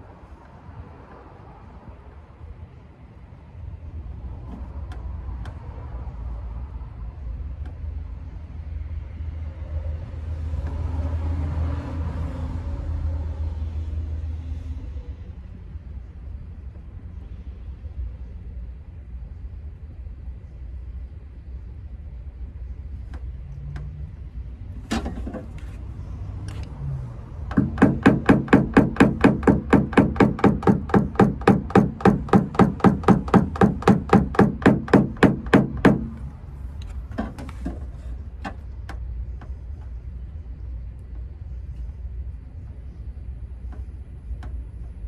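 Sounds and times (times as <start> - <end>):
hammer tapping metal panel: 27.5 - 36.3.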